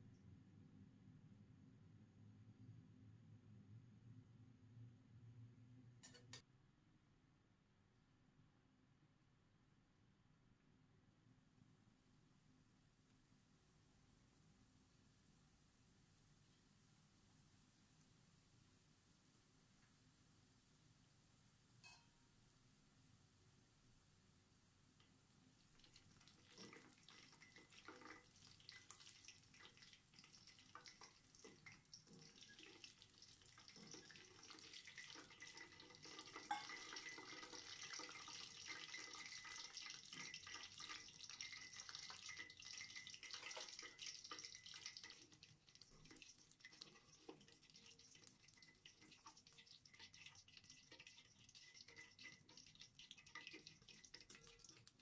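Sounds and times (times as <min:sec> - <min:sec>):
oil sizzling and crackling: 0:24.9 - 0:55.0.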